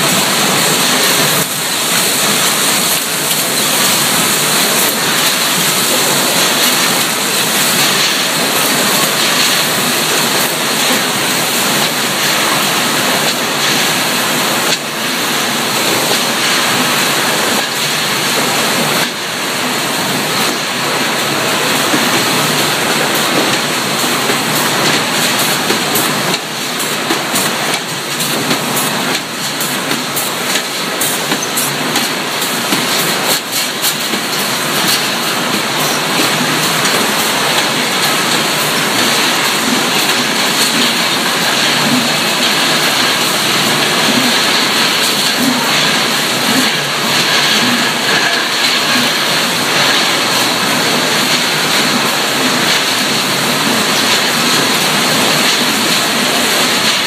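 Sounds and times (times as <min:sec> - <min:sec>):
conveyor machinery din: 0:00.0 - 0:57.0.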